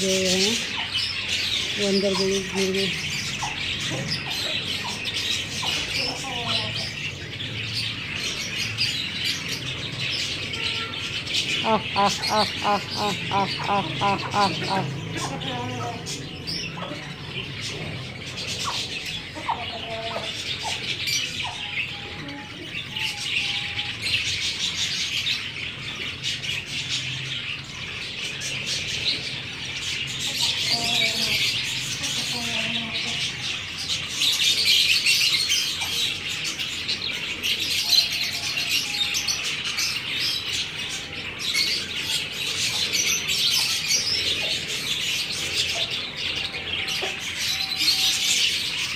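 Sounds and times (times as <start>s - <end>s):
chickens clucking: 0.0s - 7.6s, 11.4s - 23.8s, 35.7s - 48.9s
small birds chirping: 0.0s - 48.9s.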